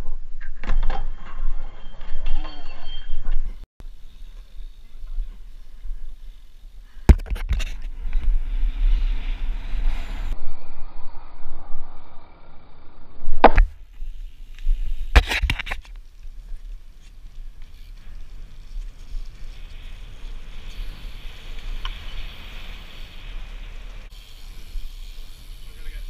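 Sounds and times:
wind rumbling on camera: 0:00.0 - 0:26.0
tyres hissing on wet tarmac: 0:16.5 - 0:26.0.

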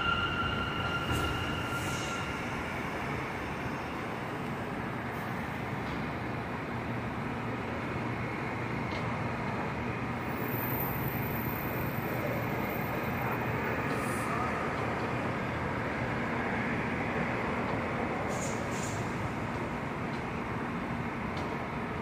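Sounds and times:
subway train rumble: 0:00.0 - 0:22.0.

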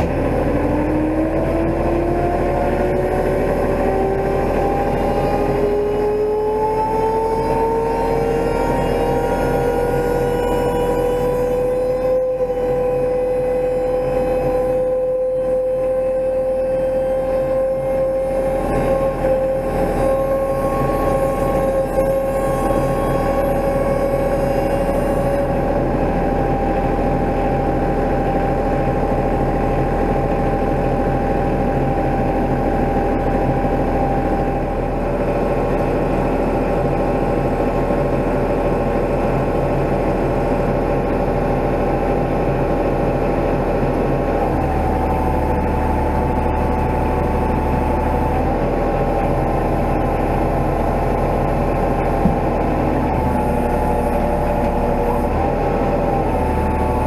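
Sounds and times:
diesel engine idling: 0:00.0 - 0:06.8, 0:25.5 - 0:57.0.

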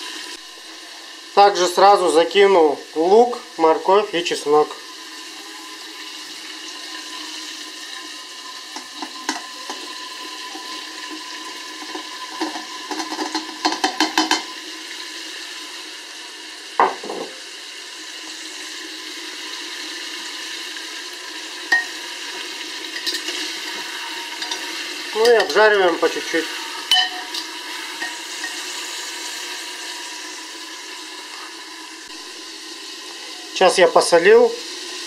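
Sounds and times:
meat sizzling in a pot: 0:00.0 - 0:35.0
vegetables clattering into pot: 0:11.8 - 0:14.5, 0:23.0 - 0:25.6.

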